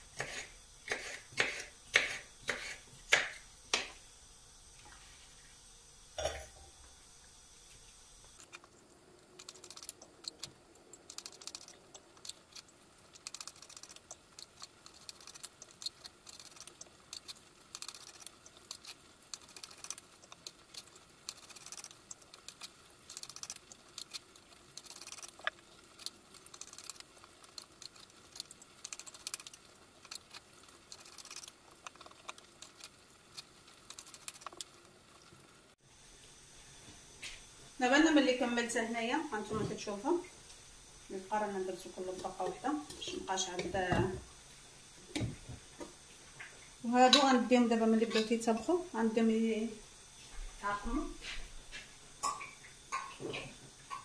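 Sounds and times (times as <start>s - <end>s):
knife cutting peppers: 0.1s - 3.9s.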